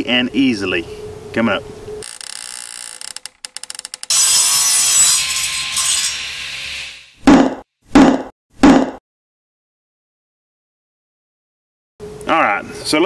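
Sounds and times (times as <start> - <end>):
sawing sound: 2.0 - 7.6.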